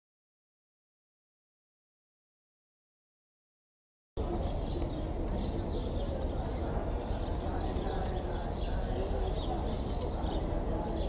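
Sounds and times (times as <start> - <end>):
murmur of distant voices: 4.2 - 11.0
small birds chirping: 4.2 - 11.0.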